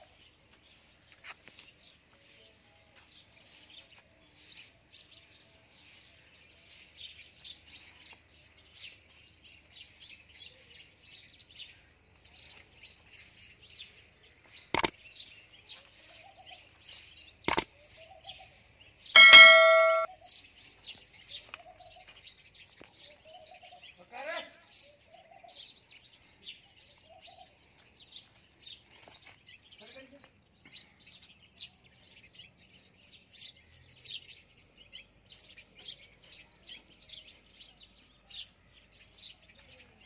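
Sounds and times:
small birds chirping: 0.0 - 40.0
loud ringing ding: 19.2 - 20.1.

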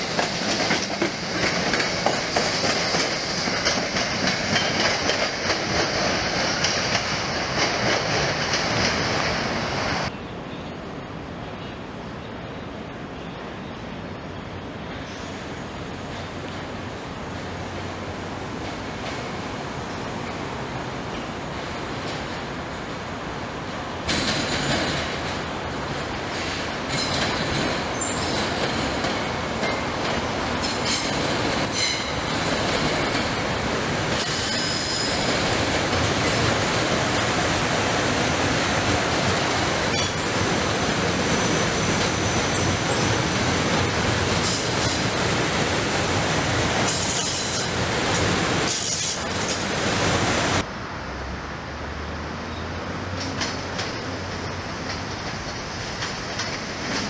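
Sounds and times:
train wheels clattering: 0.0 - 9.6, 24.0 - 45.4
high wheel squeal: 34.1 - 35.6.

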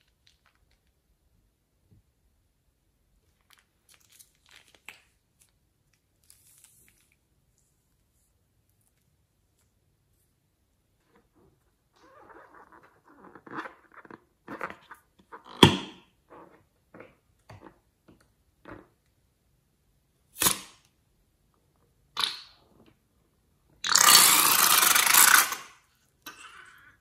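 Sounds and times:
rubber balloon squeaking: 12.0 - 14.3.

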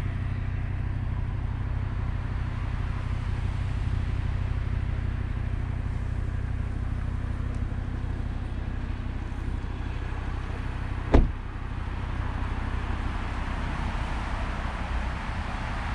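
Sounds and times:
car engine idling: 0.0 - 15.9
car door shutting: 11.1 - 11.4.

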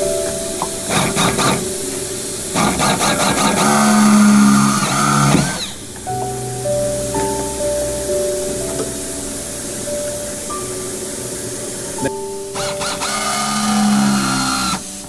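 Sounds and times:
power drill boring metal: 0.7 - 6.1, 10.9 - 15.0.

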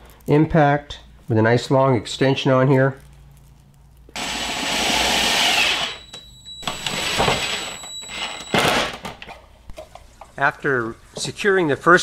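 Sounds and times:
impact driver driving screws: 4.2 - 6.0.

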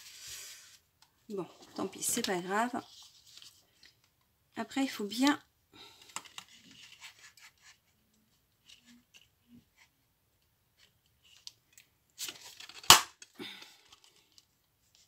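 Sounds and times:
paper rustling: 1.4 - 4.0, 5.9 - 7.9.

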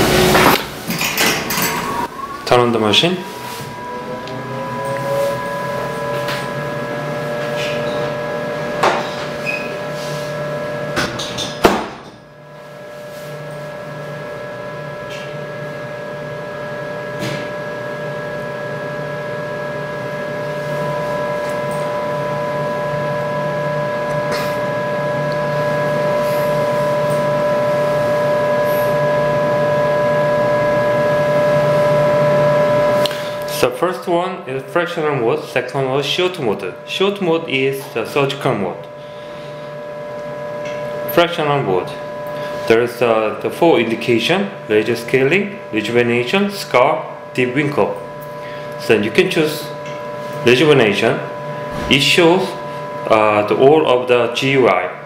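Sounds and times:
high whining tones: 0.0 - 10.9, 12.2 - 55.0
laser machine humming: 0.0 - 11.5, 12.2 - 33.7, 34.4 - 55.0
sharp knock: 11.6 - 12.2.

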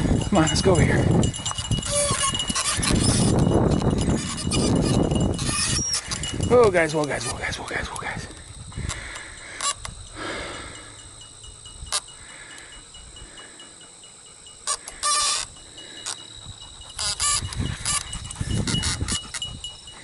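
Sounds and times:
dogs whining: 1.4 - 6.3, 13.6 - 20.0.

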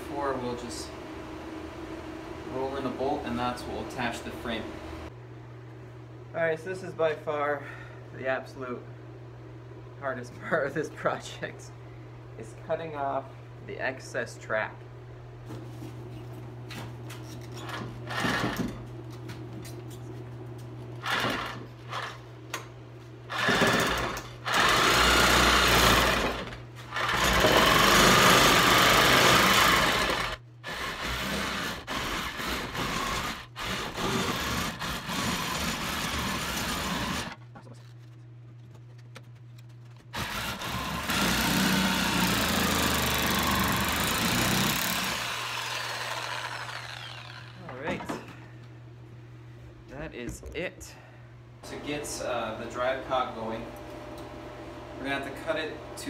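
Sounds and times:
steady low hum: 0.0 - 56.0
power saw cutting rubber: 23.3 - 37.4, 40.1 - 47.7.

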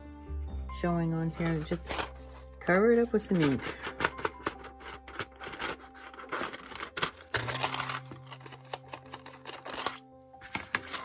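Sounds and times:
soft background music: 0.0 - 11.0
paper taps and rustles: 1.4 - 2.2, 3.3 - 11.0.

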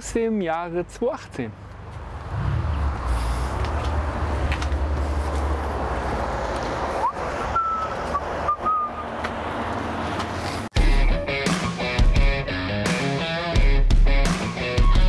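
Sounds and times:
outdoor noise: 0.0 - 11.9
vehicle engine rumbling: 1.4 - 10.7
thin whistle-like tones: 7.0 - 9.0.

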